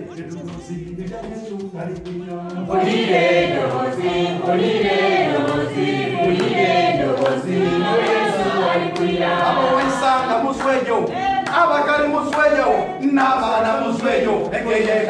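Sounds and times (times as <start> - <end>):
congregation singing in unison: 0.0 - 15.0.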